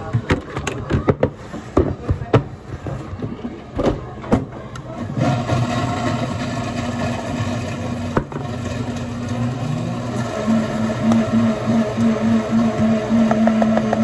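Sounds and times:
electric blender motor: 0:05.1 - 0:14.0.

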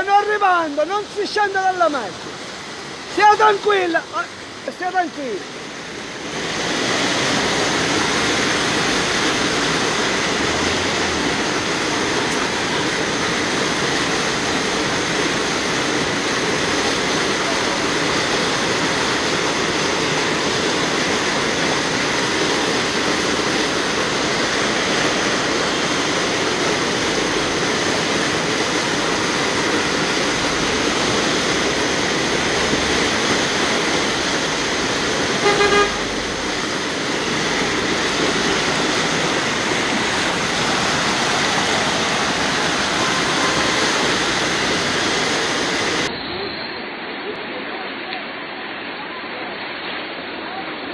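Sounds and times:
cars driving through water: 0:00.0 - 0:47.0
floodwater rushing: 0:00.0 - 0:50.9
car horn toot: 0:35.4 - 0:36.2.

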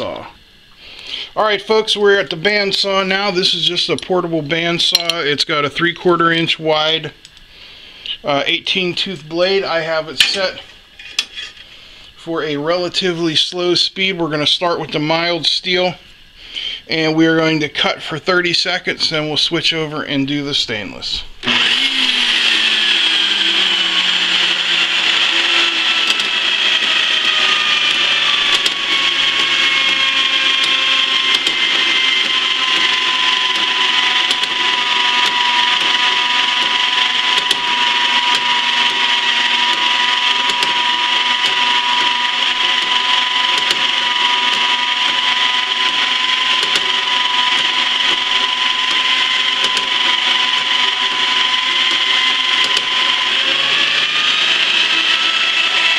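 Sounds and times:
bandsaw cutting metal: 0:01.0 - 0:05.4, 0:08.2 - 0:11.8, 0:21.4 - 0:55.9.

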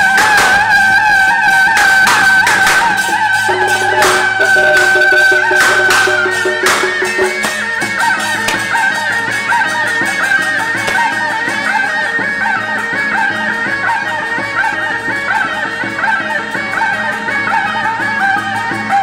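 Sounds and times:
wind instrument melody: 0:00.0 - 0:09.2
percussion beat: 0:01.7 - 0:11.9.

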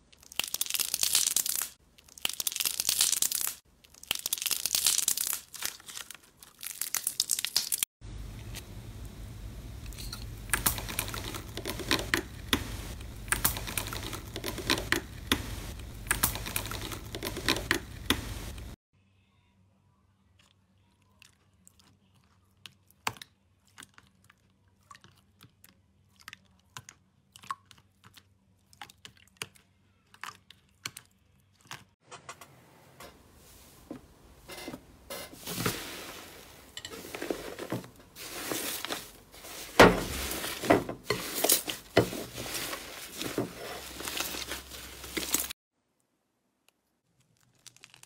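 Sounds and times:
slime crackling: 0:00.0 - 0:07.8, 0:47.1 - 0:48.0
hands squishing slime: 0:00.1 - 0:07.8.

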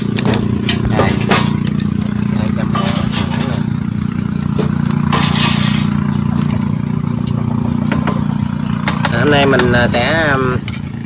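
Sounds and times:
low motor hum: 0:00.0 - 0:11.0.

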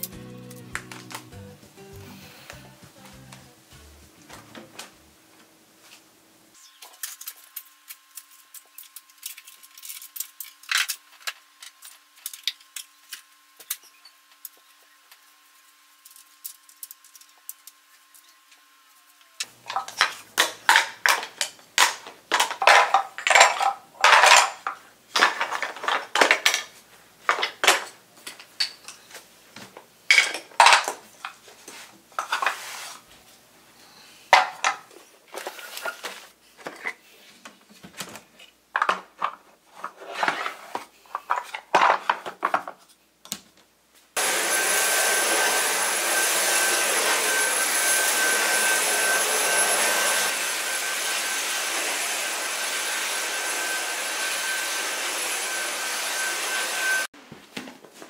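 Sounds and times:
vacuum cleaner whining: 0:44.2 - 0:57.1.

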